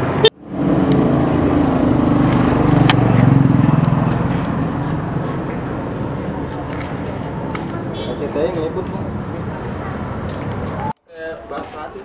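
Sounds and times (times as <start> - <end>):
vehicle engine running: 0.5 - 7.8.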